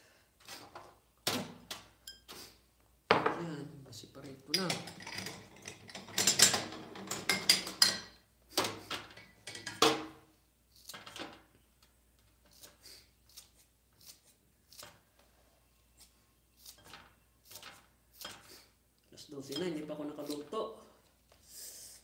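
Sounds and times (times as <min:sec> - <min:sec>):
kitchen items clattering: 0:04.5 - 0:10.2.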